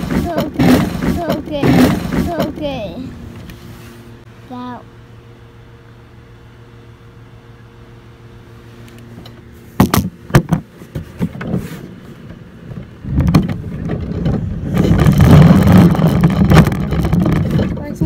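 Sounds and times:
sharp knocks: 0.0s - 2.6s
roller coaster wheels rumbling: 0.0s - 3.0s, 12.8s - 18.0s.

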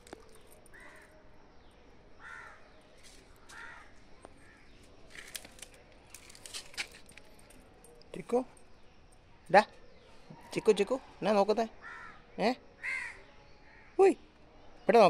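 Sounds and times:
crow cawing: 2.2s - 2.6s, 3.5s - 4.7s, 11.8s - 12.2s, 12.8s - 13.9s.

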